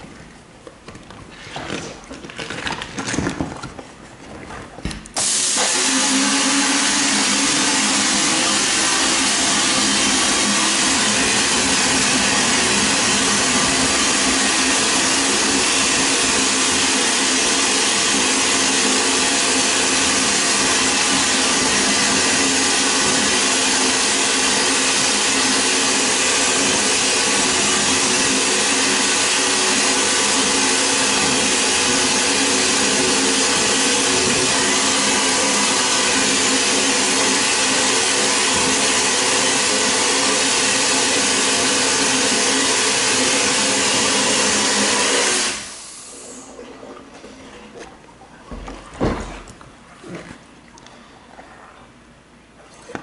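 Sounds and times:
steady hum: 4.8 - 52.7
vapor blasting gun hissing: 5.2 - 46.4.

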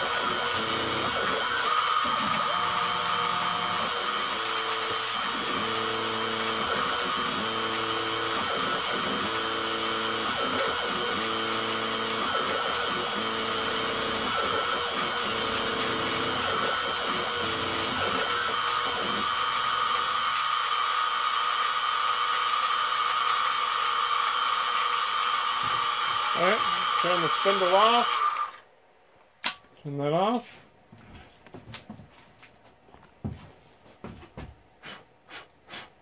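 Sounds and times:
axis motors buzzing: 0.0 - 28.6
spindle motor whine: 0.0 - 28.6.

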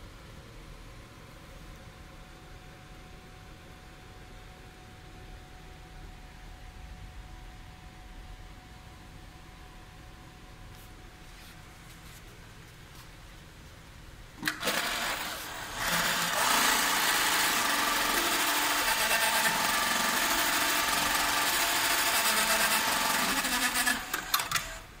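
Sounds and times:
sewing machine clicks: 14.4 - 24.8
sewing machine running: 14.4 - 24.9.

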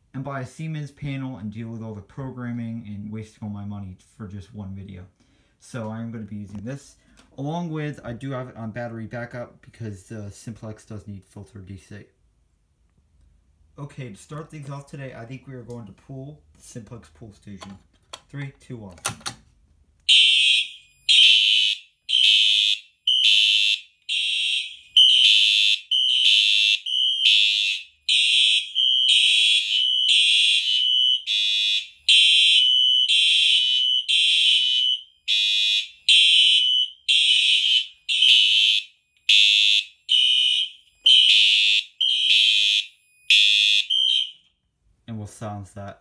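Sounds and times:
fire alarm horn pulsing: 20.1 - 44.5.

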